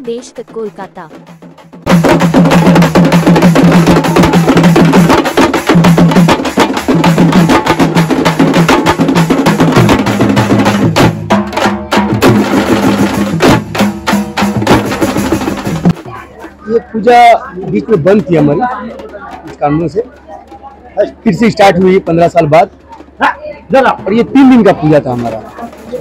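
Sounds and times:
fast loud drumming: 0.0s - 26.0s.

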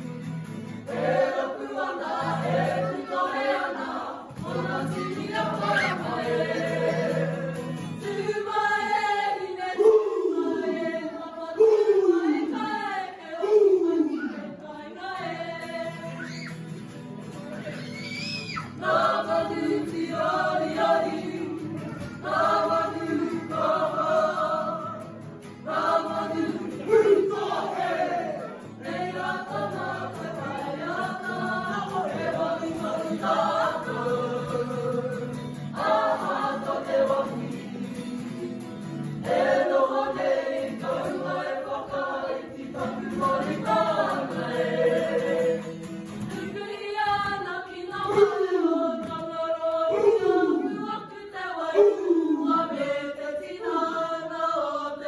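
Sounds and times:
group singing in unison: 0.0s - 17.8s, 18.6s - 55.0s
acoustic guitar: 0.0s - 55.0s.

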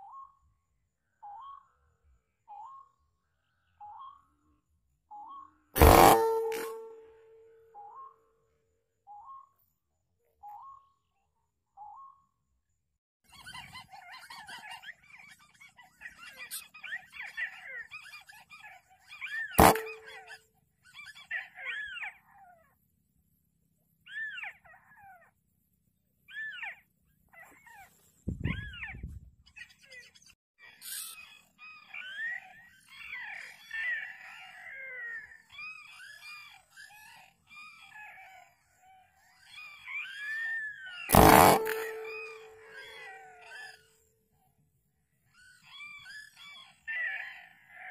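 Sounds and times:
air rifle shot: 5.8s - 7.0s, 19.6s - 20.1s, 41.1s - 42.5s
brief ringing tone: 5.8s - 7.2s.

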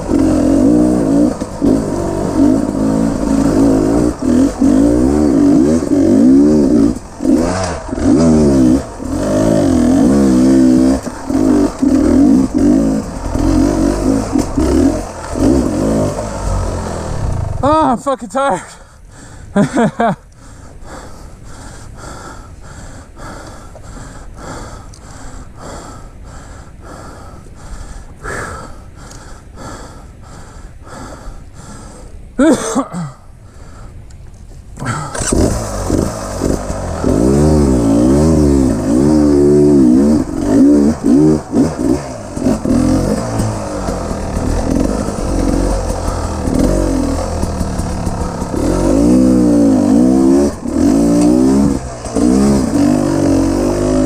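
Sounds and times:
dirt bike engine revving: 0.0s - 18.0s, 34.8s - 54.0s
person breathing hard: 18.7s - 19.6s, 20.4s - 32.4s, 33.2s - 34.1s, 43.9s - 46.6s.

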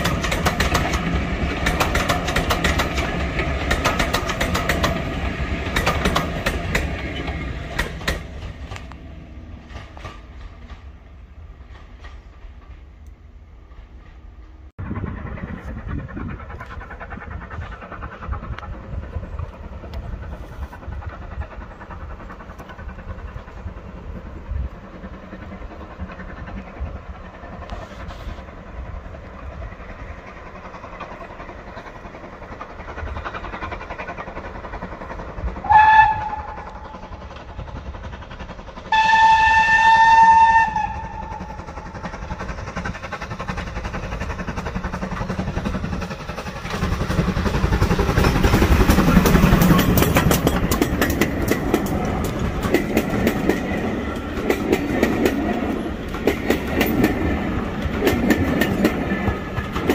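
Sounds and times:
train rumble: 0.0s - 59.9s
wheels clacking over rail joints: 0.0s - 59.9s
steam locomotive whistle: 35.6s - 37.0s, 38.9s - 41.8s.

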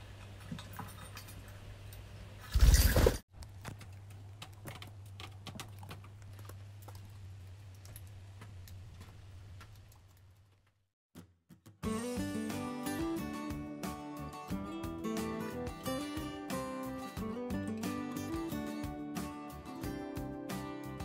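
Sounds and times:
bird pecking and tapping: 3.4s - 7.0s.

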